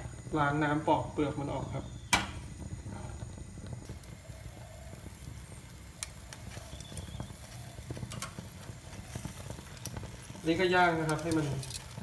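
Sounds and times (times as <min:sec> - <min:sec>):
low steady rumble: 0:00.0 - 0:12.0
metal tongs clicking on grill: 0:08.1 - 0:08.4, 0:10.6 - 0:12.0.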